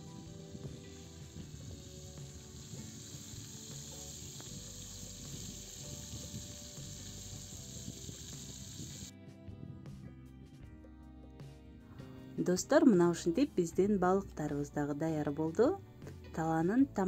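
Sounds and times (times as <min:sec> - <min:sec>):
fish deep-frying in hot oil: 0:00.0 - 0:09.1
faint background music: 0:00.0 - 0:17.0.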